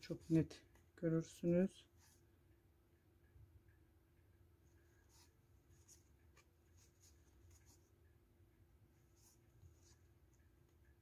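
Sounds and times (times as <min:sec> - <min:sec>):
low steady hum: 0:00.0 - 0:11.0
crochet hook scratching yarn: 0:04.7 - 0:08.0, 0:09.0 - 0:10.6.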